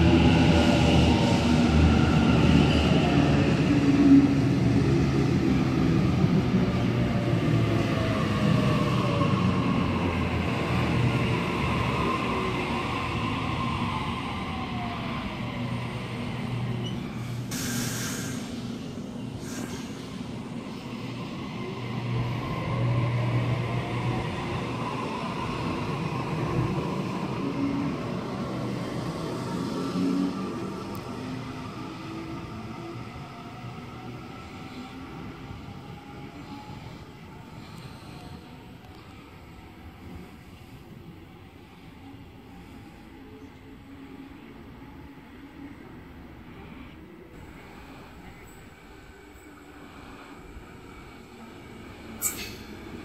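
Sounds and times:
electric train rumbling past: 0.0 - 53.0.

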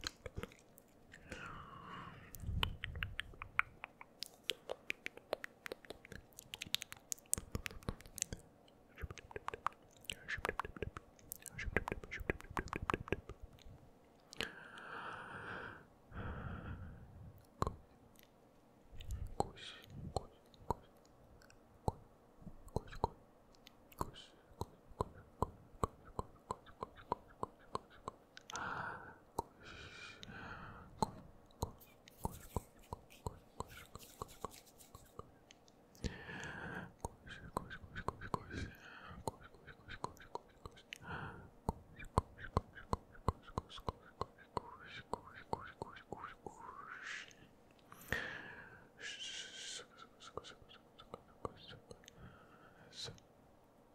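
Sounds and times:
wet tongue clicks and lip smacks: 0.0 - 1.4, 2.3 - 14.5, 22.6 - 28.6, 31.0 - 46.4
faint breathy whisper: 0.0 - 3.2, 8.9 - 13.3, 14.3 - 17.8, 19.0 - 21.0, 24.0 - 35.4, 36.0 - 53.3.

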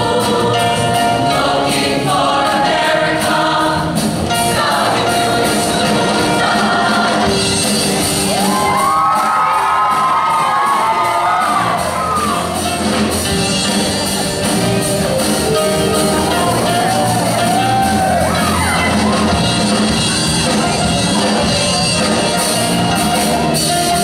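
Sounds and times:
dance backing music: 0.0 - 24.0
voices shouting and whooping: 8.3 - 12.5, 16.4 - 19.4.

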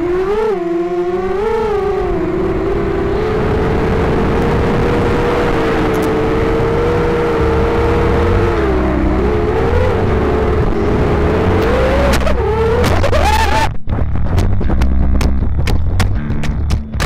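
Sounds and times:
drone motors whining: 0.0 - 13.8
rushing wind: 0.0 - 14.2.

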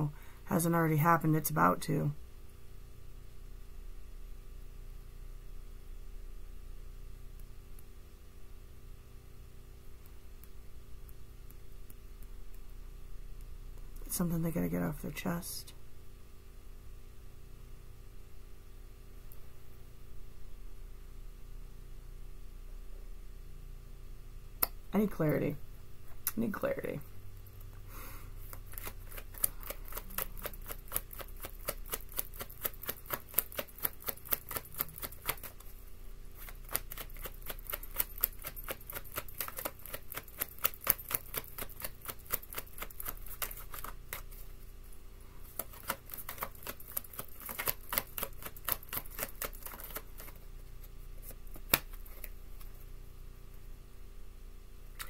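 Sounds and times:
cards being shuffled: 28.4 - 35.8, 36.4 - 44.6, 45.4 - 52.8.

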